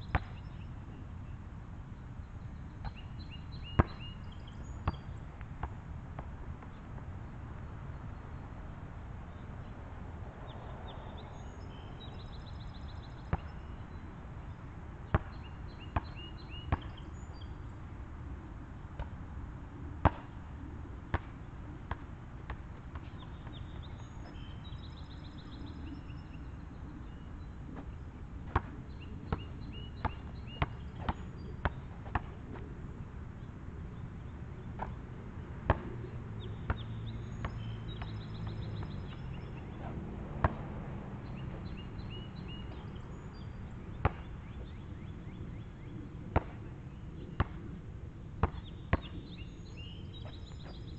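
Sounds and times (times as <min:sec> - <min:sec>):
basketball bouncing on asphalt: 0:00.0 - 0:00.7, 0:02.8 - 0:07.1, 0:12.7 - 0:14.0, 0:15.1 - 0:17.1, 0:20.0 - 0:20.4, 0:21.1 - 0:25.1, 0:27.8 - 0:32.4, 0:34.6 - 0:45.6, 0:46.3 - 0:46.6, 0:47.4 - 0:47.6, 0:48.4 - 0:50.8.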